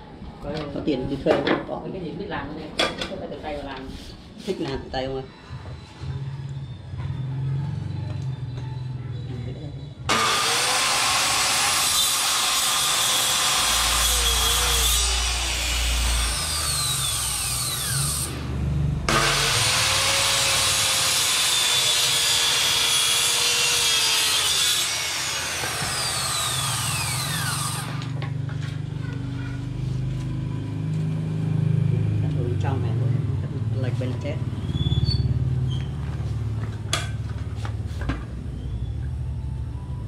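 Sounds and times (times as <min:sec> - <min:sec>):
circular saw cutting wood: 0:10.1 - 0:28.2.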